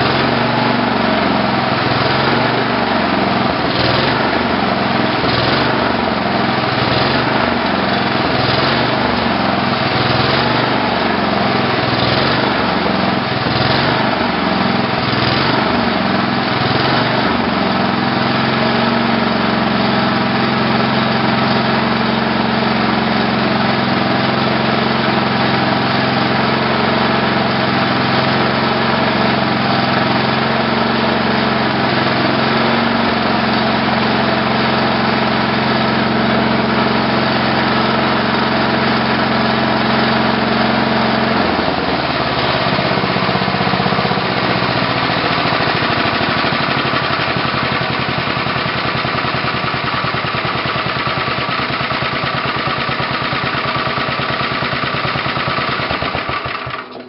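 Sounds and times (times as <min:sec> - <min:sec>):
single-cylinder engine running: 0:00.0 - 0:57.0.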